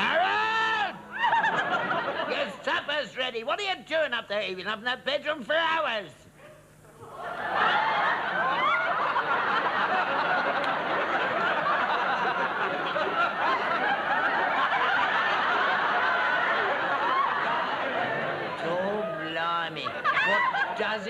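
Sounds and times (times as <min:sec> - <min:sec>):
audience laughing: 0:01.1 - 0:02.6, 0:07.0 - 0:21.0.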